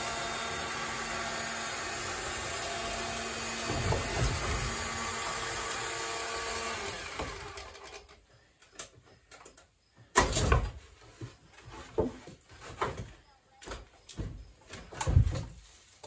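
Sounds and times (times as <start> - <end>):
chainsaw engine running: 0.0 - 8.0.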